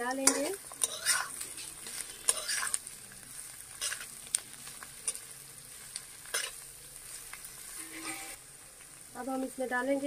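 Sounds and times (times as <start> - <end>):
vegetables sizzling in a pan: 0.0 - 10.0
metal spatula scraping a pan: 0.1 - 2.9, 3.6 - 4.1, 5.0 - 5.3, 6.2 - 8.4.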